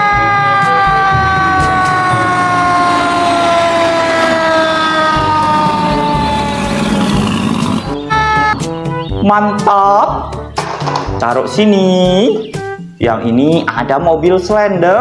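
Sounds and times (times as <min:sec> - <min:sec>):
fire truck siren: 0:00.0 - 0:08.6
truck engine running: 0:01.5 - 0:08.0.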